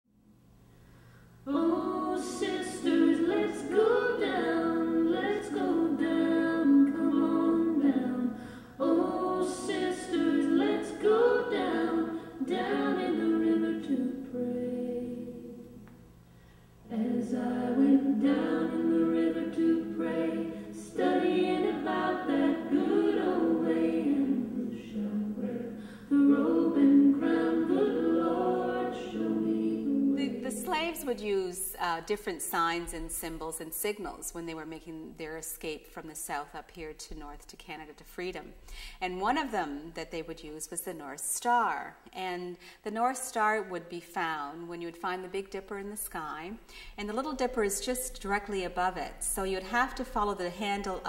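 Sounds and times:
unaccompanied choir singing: 0:01.5 - 0:15.8, 0:16.8 - 0:31.0.

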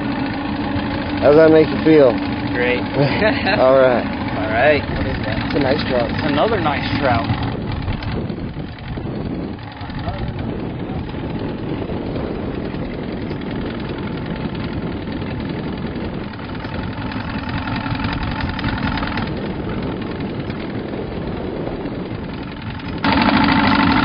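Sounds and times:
outboard motor running: 0:00.0 - 0:24.0.

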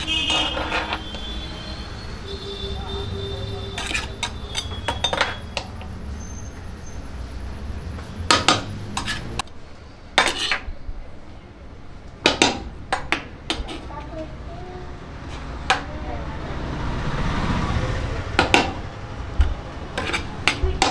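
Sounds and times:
metal scoop clanking in pot: 0:03.7 - 0:05.7.

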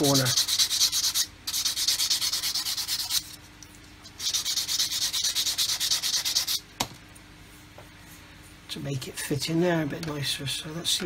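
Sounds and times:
sanding stick on plastic: 0:00.0 - 0:03.4, 0:04.1 - 0:06.6.

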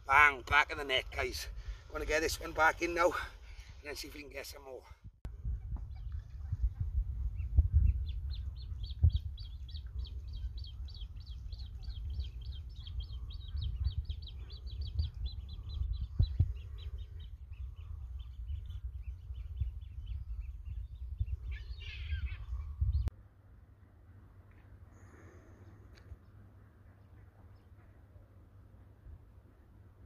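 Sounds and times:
steady low rumble: 0:05.1 - 0:24.4
bird chirping: 0:05.5 - 0:23.1.

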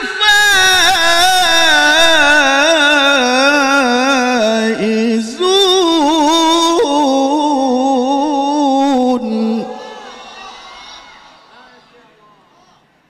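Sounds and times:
man reciting melodically: 0:00.0 - 0:10.1.

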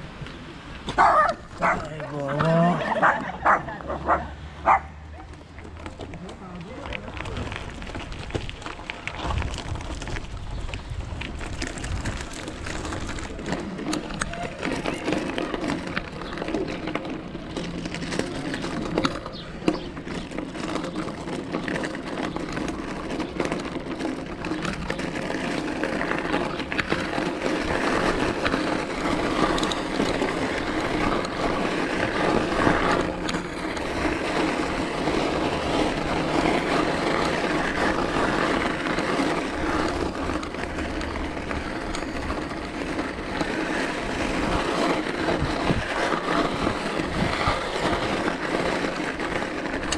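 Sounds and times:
bicycle clicks and rattles: 0:00.0 - 0:49.9
bicycle rolling noise: 0:00.0 - 0:49.9.

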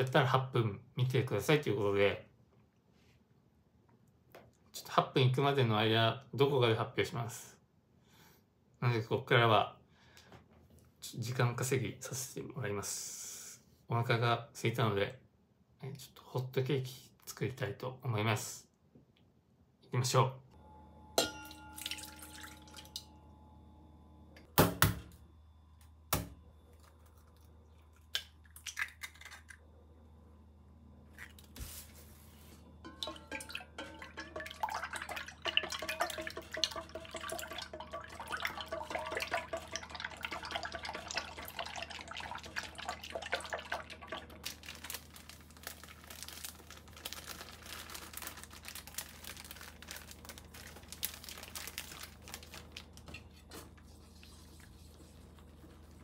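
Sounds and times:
milk pouring into steel bowl: 0:21.5 - 0:23.0, 0:32.9 - 0:47.2.

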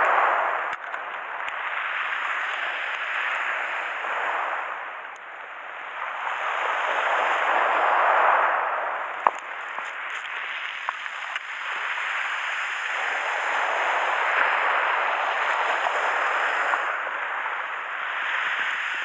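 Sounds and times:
waves washing on pebble beach: 0:00.0 - 0:19.0
pebble clicks: 0:09.2 - 0:11.5.

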